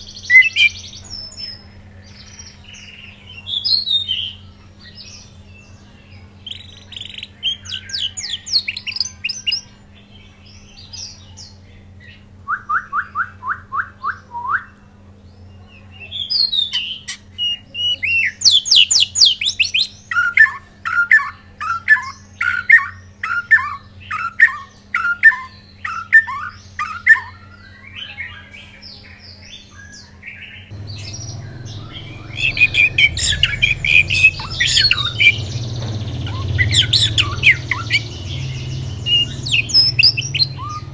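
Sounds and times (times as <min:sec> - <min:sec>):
bird singing varied song: 0:00.0 - 0:40.9.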